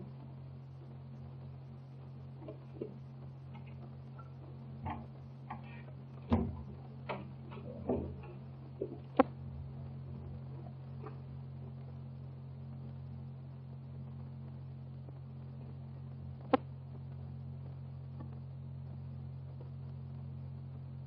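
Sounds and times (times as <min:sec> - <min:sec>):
steady low hum: 0:00.0 - 0:21.0
irregular clicks and knocks: 0:02.4 - 0:11.2.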